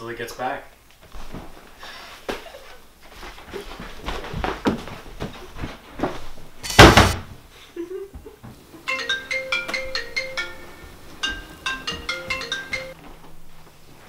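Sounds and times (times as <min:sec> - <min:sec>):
loud thump: 0:06.7 - 0:07.3
smartphone ringtone: 0:08.9 - 0:13.0.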